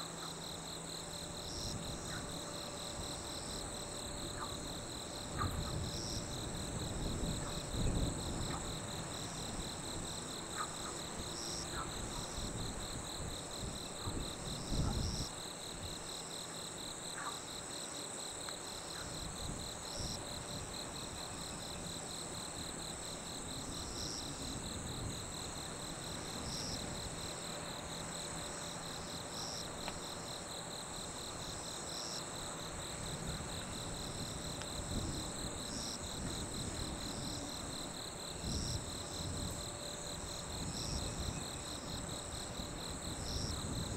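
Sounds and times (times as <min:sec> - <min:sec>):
night insects trilling: 0:00.0 - 0:43.9.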